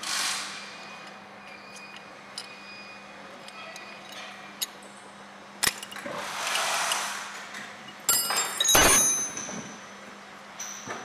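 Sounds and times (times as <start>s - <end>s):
sharp metal clink: 8.1s - 9.6s.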